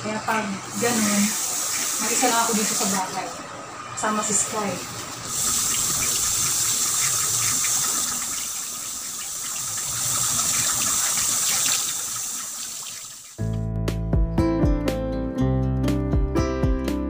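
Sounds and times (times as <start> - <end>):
tap water running into basin: 0.7 - 3.5, 4.3 - 13.4
small splashes of rinsing: 4.9 - 13.4.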